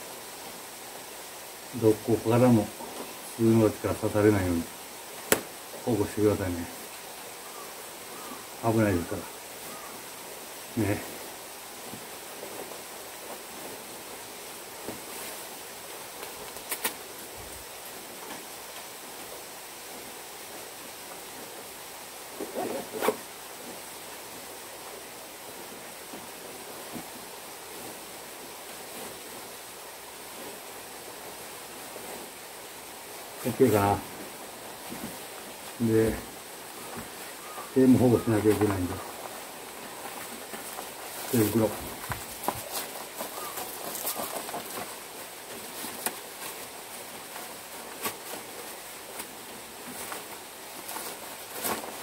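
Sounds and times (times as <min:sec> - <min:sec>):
steady outdoor hiss: 0:00.0 - 0:52.0
nylon glove and jacket rustling: 0:10.8 - 0:52.0
jacket hood rustling: 0:22.3 - 0:23.8.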